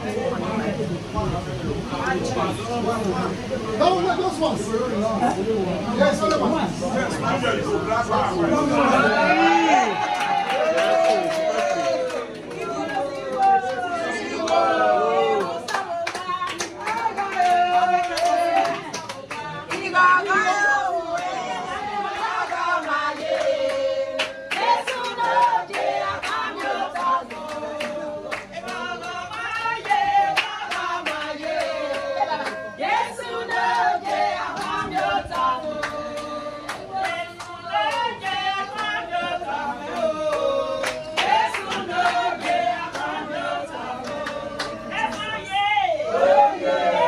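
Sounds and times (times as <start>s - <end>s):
group of people singing: 7.6s - 47.0s
handclaps: 15.4s - 19.9s, 23.2s - 32.6s, 34.1s - 38.9s, 39.9s - 43.2s, 44.0s - 45.3s.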